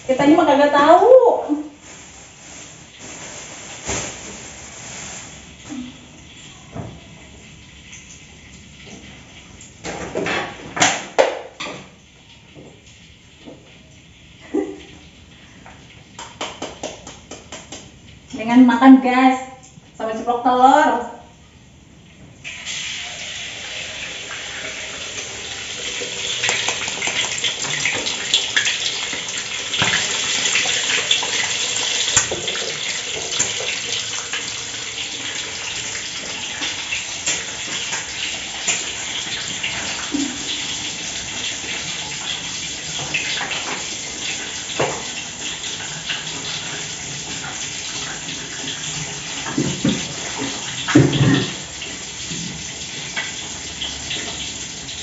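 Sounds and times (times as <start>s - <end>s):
egg sizzling in hot oil: 22.4s - 48.5s.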